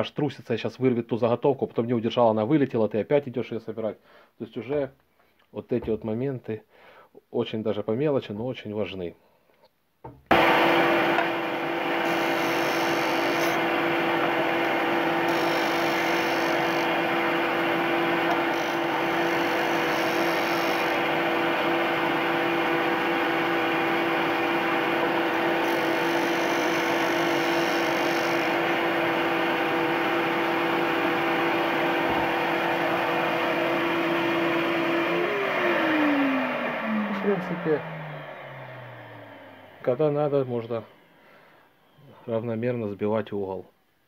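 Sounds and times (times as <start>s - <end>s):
motor spinning down: 10.3s - 41.2s
sander motor hum: 10.3s - 41.2s
sanding disc hissing on wood: 11.8s - 21.2s, 25.4s - 28.7s.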